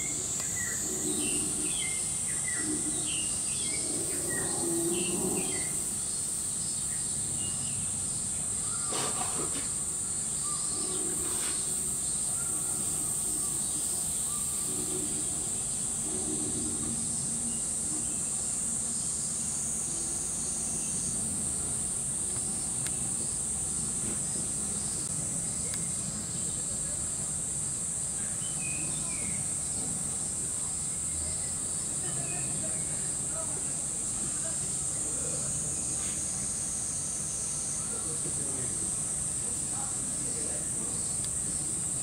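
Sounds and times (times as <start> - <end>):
cicadas droning: 0.0 - 42.0
faint voices: 28.1 - 36.9.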